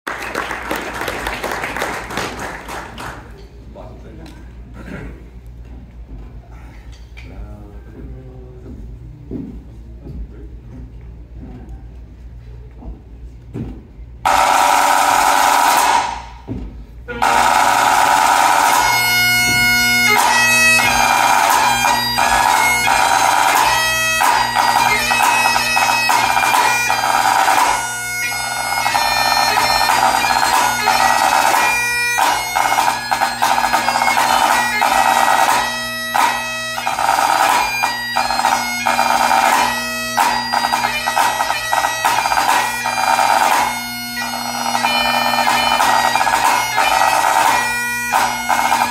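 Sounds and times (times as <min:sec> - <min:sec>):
bagpipe playing: 0:14.3 - 0:16.4, 0:17.1 - 0:48.9
snare drum rolls: 0:14.3 - 0:16.5, 0:17.2 - 0:27.9, 0:28.5 - 0:43.7, 0:44.3 - 0:48.9.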